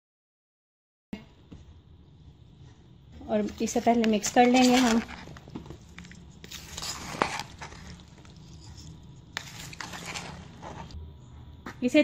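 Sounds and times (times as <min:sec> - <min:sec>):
spoon stirring food in plastic bowl: 0:03.4 - 0:11.0.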